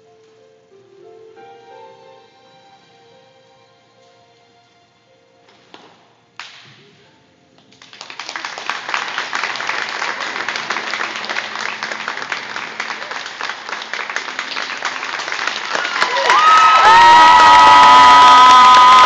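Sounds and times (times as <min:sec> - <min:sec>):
faint sustained music: 0:00.0 - 0:15.9
audience applause: 0:07.8 - 0:19.0.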